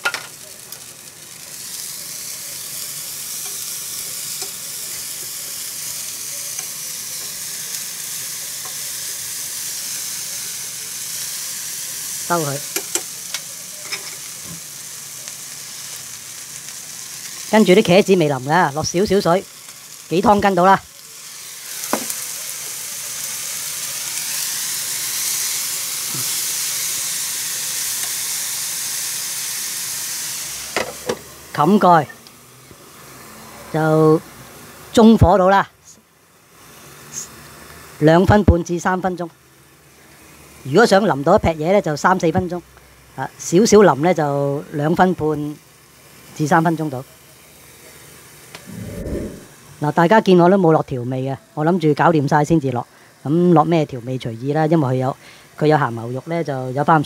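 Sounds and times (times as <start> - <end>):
water boiling off into steam: 0.0 - 13.8
food sizzling in a frying pan: 0.0 - 57.0.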